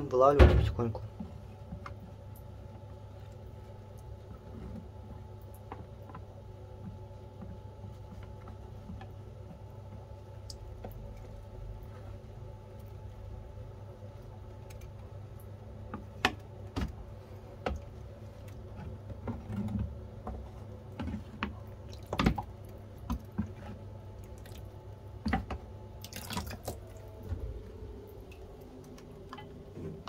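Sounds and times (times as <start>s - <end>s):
water splashing and dripping: 21.8s - 23.4s, 24.2s - 25.4s, 26.0s - 27.4s.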